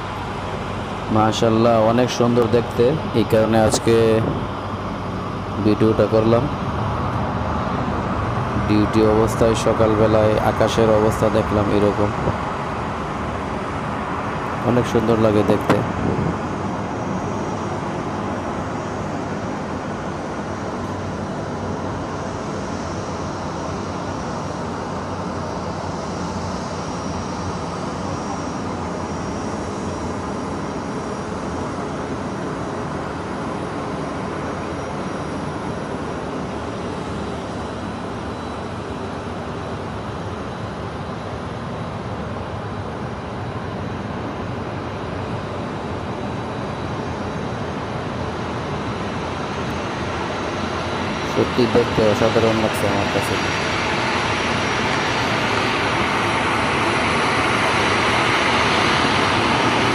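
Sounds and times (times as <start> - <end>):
distant city traffic rumble: 0.0 - 59.9.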